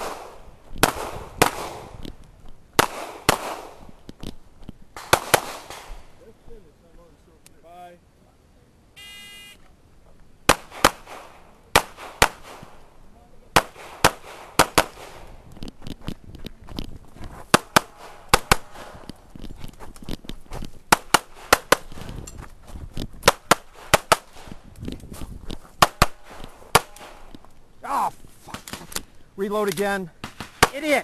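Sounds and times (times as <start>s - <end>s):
pistol shots: 0.0s - 1.9s, 2.8s - 3.8s, 10.5s - 12.7s, 13.5s - 15.3s, 25.8s - 27.3s.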